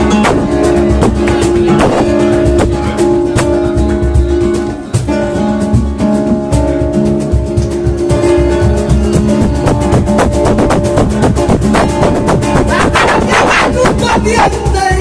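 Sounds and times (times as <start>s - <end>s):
flamenco guitars: 0.0s - 15.0s.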